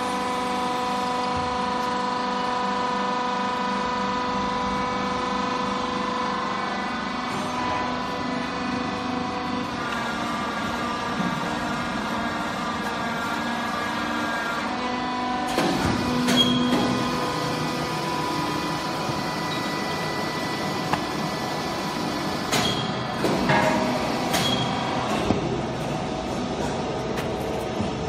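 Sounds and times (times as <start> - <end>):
waste baler motor humming: 0.0 - 28.0.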